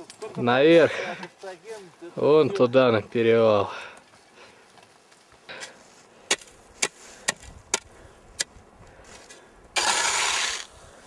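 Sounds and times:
shovel scraping snow: 9.1s - 10.8s
shovel chopping hard snow: 9.8s - 10.7s.

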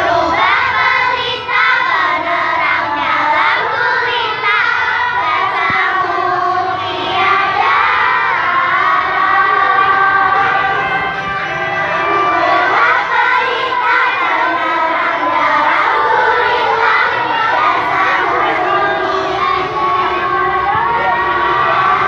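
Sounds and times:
children singing together: 0.0s - 22.0s.

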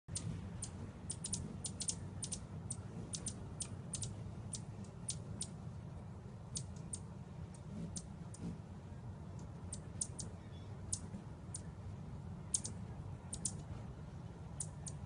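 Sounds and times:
hummingbird chip calls: 0.1s - 5.6s, 6.4s - 8.4s, 9.5s - 11.8s, 12.4s - 13.7s, 14.5s - 15.0s
steady low rumble: 0.1s - 15.0s.

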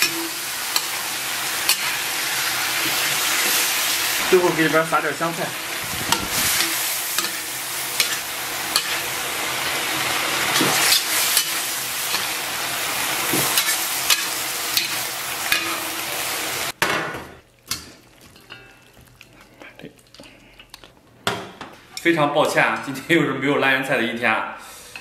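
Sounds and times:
food sizzling in a wok: 0.0s - 16.8s.

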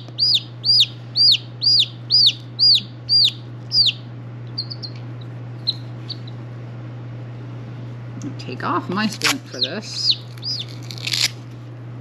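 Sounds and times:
chick peeping: 0.0s - 6.4s, 9.5s - 11.2s.

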